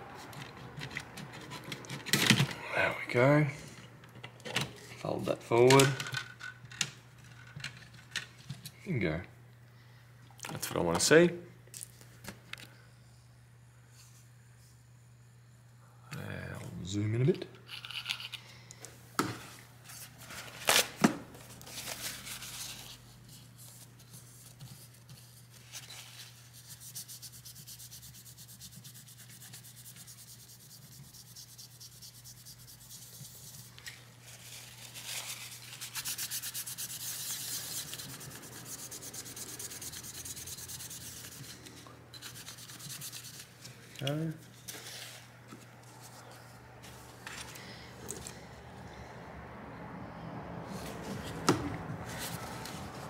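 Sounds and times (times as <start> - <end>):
rapid rubbing strokes: 26.4 - 43.6.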